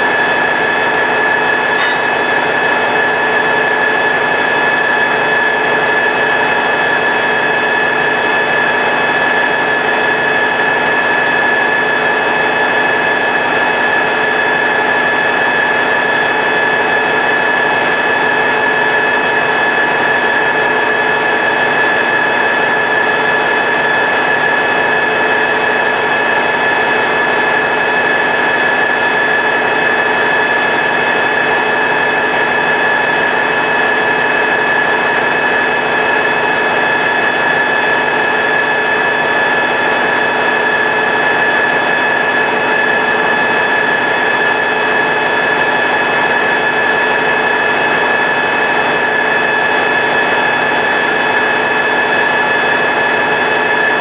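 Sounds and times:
high whining tones: 0:00.0 - 0:09.6
diesel locomotive idling: 0:00.1 - 0:05.2.

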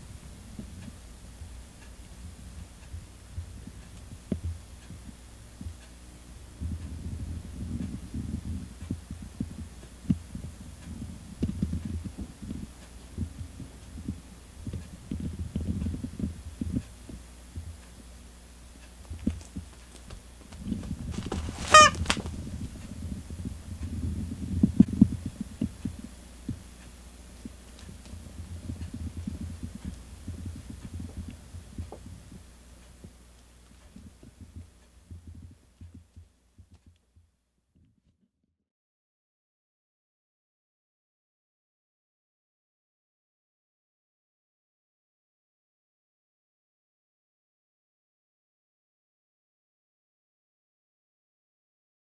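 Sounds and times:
cat thumping on floor: 0:21.2 - 0:22.4.

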